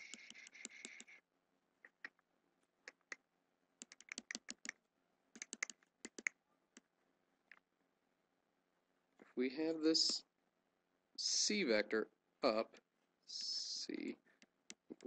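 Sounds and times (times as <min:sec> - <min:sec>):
stylus tapping on screen: 0:03.8 - 0:04.8, 0:05.4 - 0:06.9.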